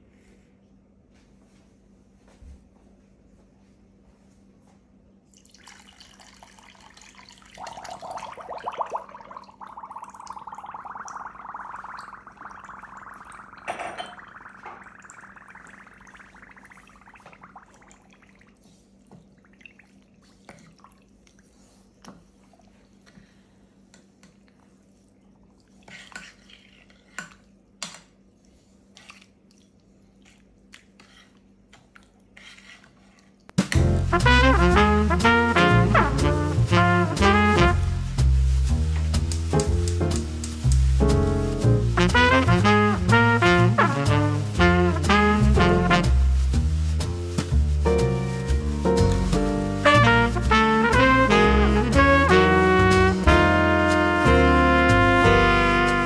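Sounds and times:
liquid pouring into metal pan: 0:05.4 - 0:18.3.

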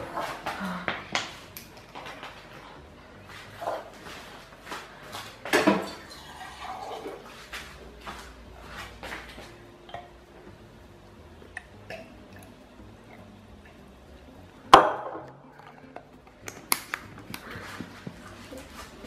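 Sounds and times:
bottle and jug clinking: 0:05.5 - 0:07.3
plastic cap clicking: 0:14.9 - 0:17.5.

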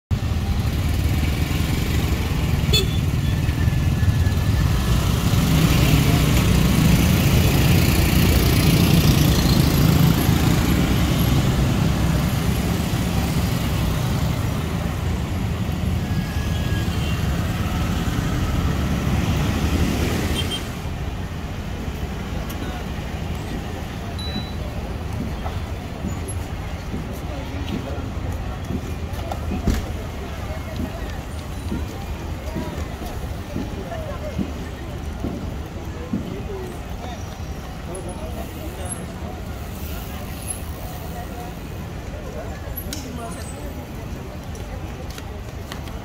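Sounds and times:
motorcycle and car engines: 0:00.1 - 0:36.7
faint voices: 0:21.3 - 0:46.0.

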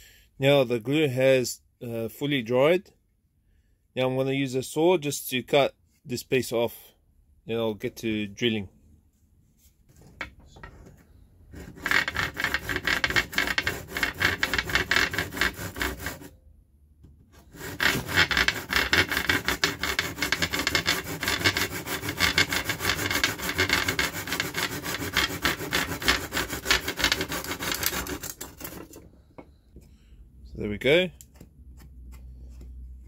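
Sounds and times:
handsaw cutting wood: 0:11.5 - 0:16.4, 0:17.4 - 0:29.0.

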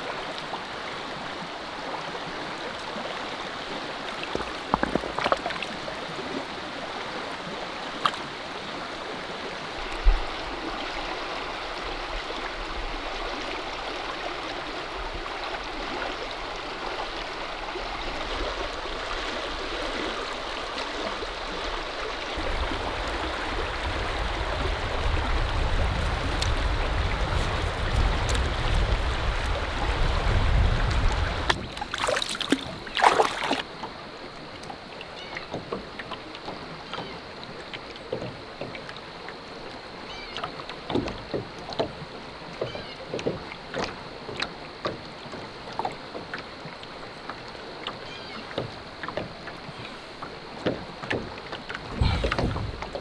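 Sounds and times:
stream running over rocks: 0:00.0 - 0:53.0
short knocks: 0:51.9 - 0:53.0.

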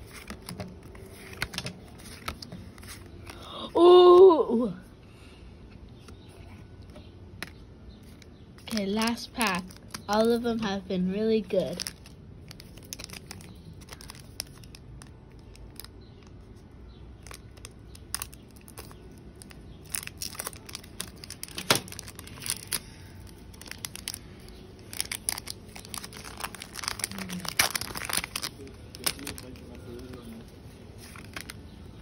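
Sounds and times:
foil wrapper crinkling: 0:08.0 - 0:16.5, 0:17.1 - 0:32.0.

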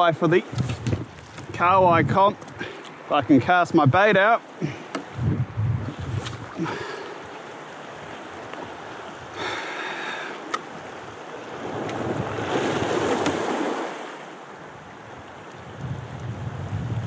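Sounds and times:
water splashing around kayak: 0:00.0 - 0:17.0
wind on microphone: 0:00.5 - 0:02.7, 0:05.0 - 0:07.4, 0:11.6 - 0:13.5, 0:15.1 - 0:17.0.

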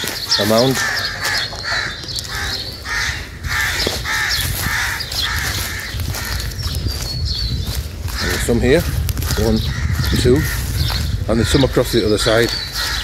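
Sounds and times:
crows cawing: 0:00.0 - 0:07.1, 0:08.0 - 0:13.0.

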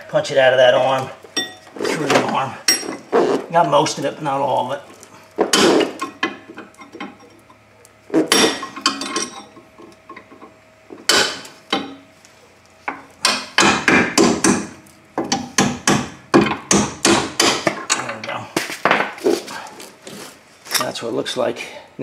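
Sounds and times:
hammer striking steel punch: 0:13.2 - 0:17.8.

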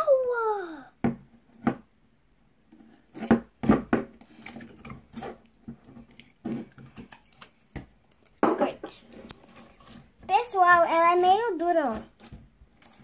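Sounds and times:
slime squishing: 0:04.2 - 0:13.0.

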